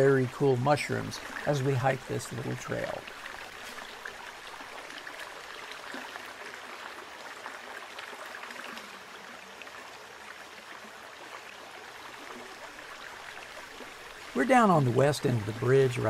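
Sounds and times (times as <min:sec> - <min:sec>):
stream water flowing: 0:00.0 - 0:16.0.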